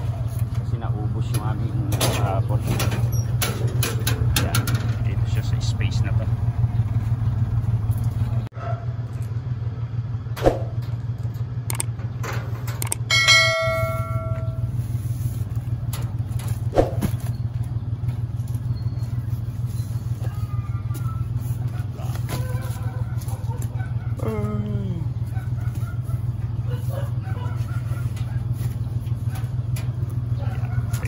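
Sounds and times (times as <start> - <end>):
vehicle engine idling: 0.0 - 31.0
bell-like ringing tone: 13.1 - 14.8.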